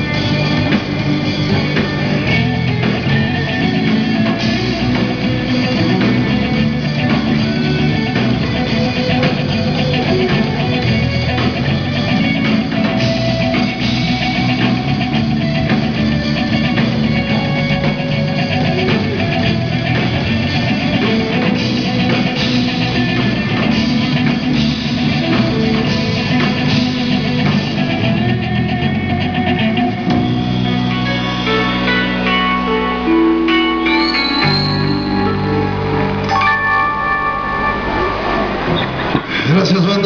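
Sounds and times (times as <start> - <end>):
distorted electric guitars: 0.0 - 40.0
drum kit: 0.0 - 40.0
keyboard: 0.0 - 40.0.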